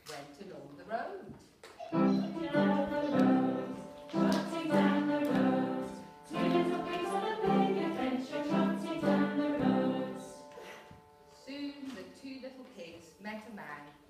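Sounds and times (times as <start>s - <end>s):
melody of held notes: 2.0s - 12.6s.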